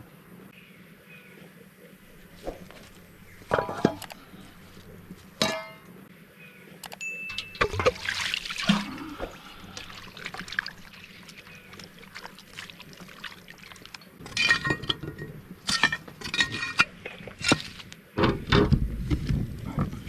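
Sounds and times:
clinks: 5.4s - 5.9s, 6.9s - 8.0s, 14.2s - 16.9s
liquid pouring and trickling: 7.3s - 15.2s.

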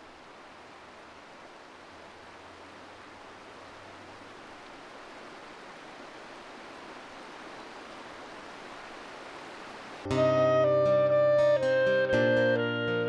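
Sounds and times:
stream rushing over stones: 0.0s - 10.2s.

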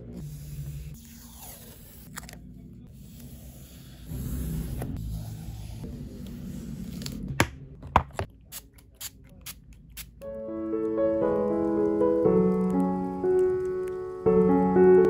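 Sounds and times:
soft piano music: 10.2s - 15.0s.

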